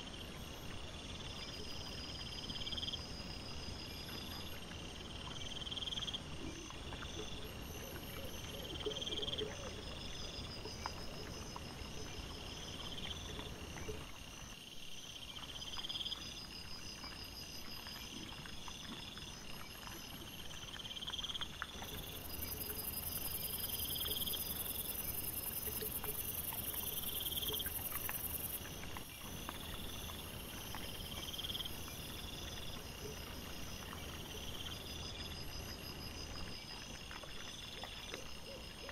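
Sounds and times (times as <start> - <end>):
insects chirping: 0.0 - 38.9.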